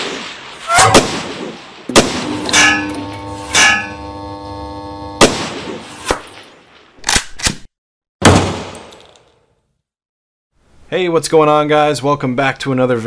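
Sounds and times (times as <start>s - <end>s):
gunshot-like cracks: 0.0s - 2.9s, 5.2s - 6.4s, 8.2s - 8.9s
metallic hits and ringing clang: 2.3s - 4.1s.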